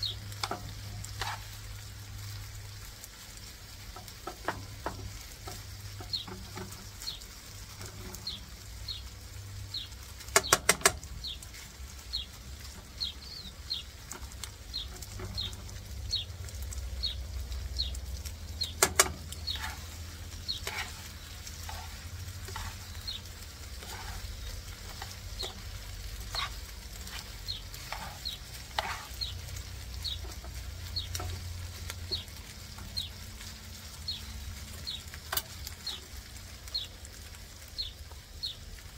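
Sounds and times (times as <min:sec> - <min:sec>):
bird chirping: 0:00.0 - 0:01.5, 0:04.4 - 0:33.3, 0:34.0 - 0:36.1, 0:37.8 - 0:38.7
meat sizzling in a frying pan: 0:00.0 - 0:38.9
metal tongs clacking on pan: 0:10.3 - 0:11.1, 0:18.6 - 0:22.8.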